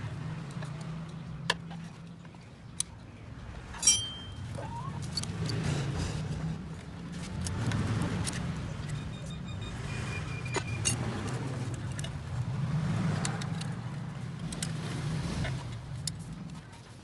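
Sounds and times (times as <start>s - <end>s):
sharp metallic clicks and taps: 13.2s - 13.8s.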